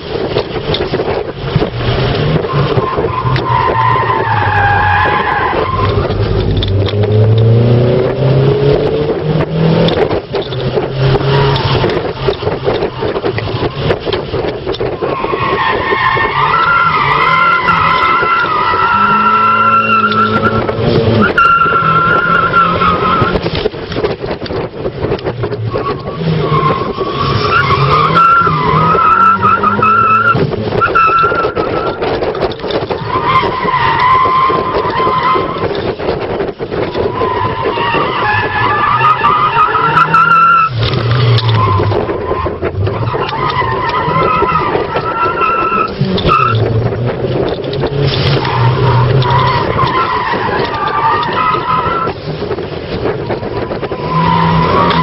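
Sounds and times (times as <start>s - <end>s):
car engine revving: 0.6s - 55.0s
tyres squealing: 2.4s - 7.3s, 14.9s - 23.4s, 25.6s - 32.1s, 37.0s - 52.2s, 53.8s - 55.0s.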